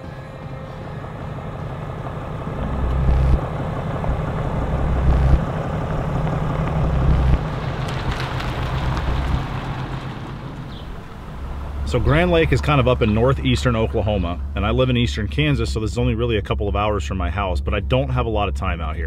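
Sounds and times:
truck engine rumble: 0:00.0 - 0:19.0
tyre noise: 0:02.6 - 0:14.7.

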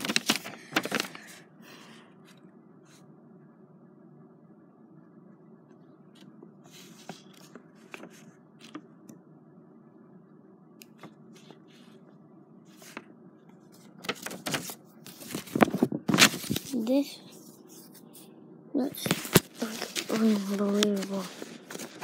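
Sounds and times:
book pages rustling: 0:00.0 - 0:01.4, 0:06.2 - 0:08.9, 0:10.8 - 0:12.1, 0:12.7 - 0:18.2, 0:18.9 - 0:22.0
low steady hum: 0:00.0 - 0:22.0.

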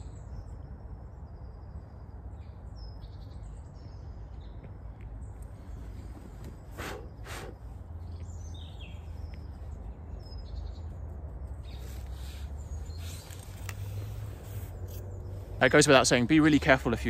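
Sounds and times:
birds chirping: 0:00.0 - 0:17.0
steady low rumble: 0:03.7 - 0:17.0.

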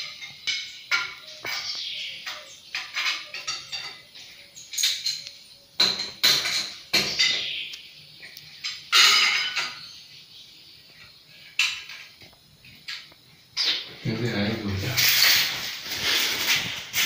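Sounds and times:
sharp knocks and clatters: 0:00.0 - 0:05.2, 0:05.8 - 0:07.5, 0:08.6 - 0:09.9.

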